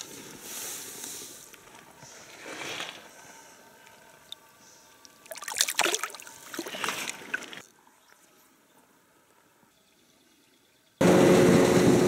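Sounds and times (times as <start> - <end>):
splashing in shallow water: 5.0 - 7.7.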